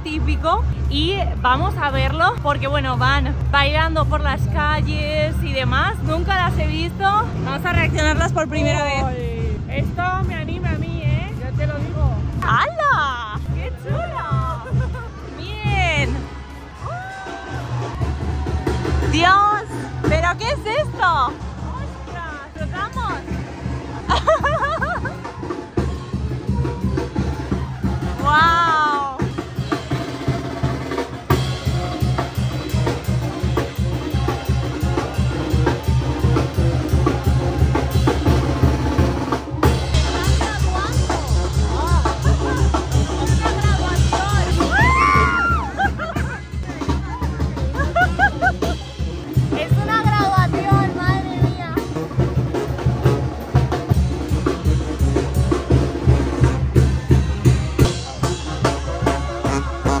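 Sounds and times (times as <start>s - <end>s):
low bass line: 0.0s - 30.0s, 30.7s - 60.0s
bass drum and snare beat: 0.1s - 60.0s
procession band music: 17.8s - 60.0s.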